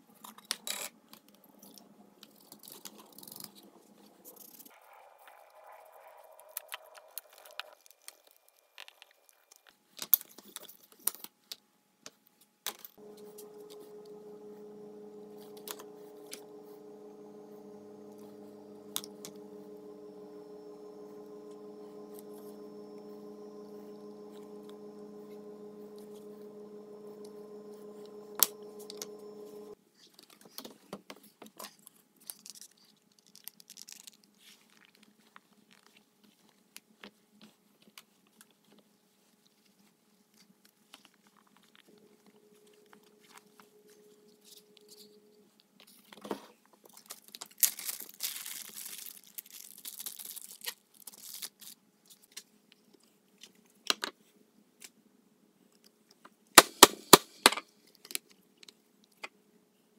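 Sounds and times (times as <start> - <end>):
steady droning hum: 13.0 - 29.8.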